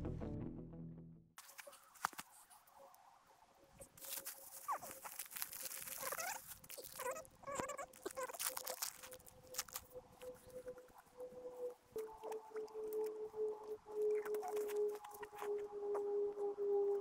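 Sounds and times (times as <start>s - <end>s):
plastic bag crinkling: 4.0s - 10.8s.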